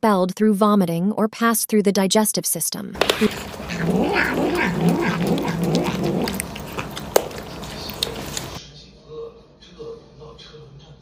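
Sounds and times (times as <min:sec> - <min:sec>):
cat yowling: 0:03.0 - 0:08.6.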